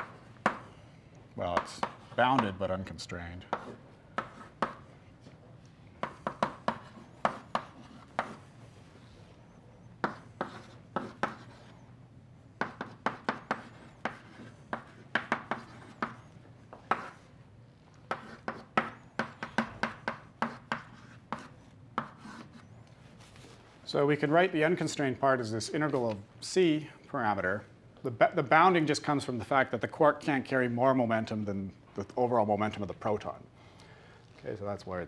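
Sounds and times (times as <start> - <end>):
chalk tapping on blackboard: 0.0 - 0.7, 1.6 - 2.6, 3.5 - 4.8, 6.0 - 8.4, 10.0 - 11.7, 12.6 - 17.2, 18.1 - 22.6.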